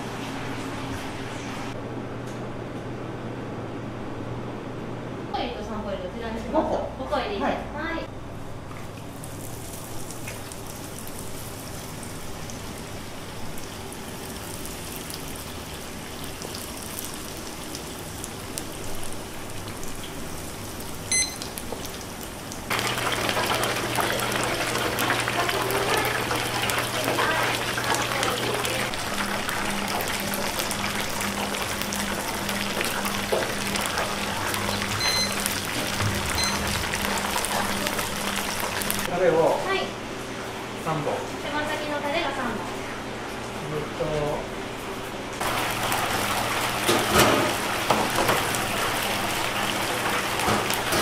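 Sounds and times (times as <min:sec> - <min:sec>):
oil sizzling in deep fryer: 0:08.8 - 0:39.8, 0:45.4 - 0:51.0.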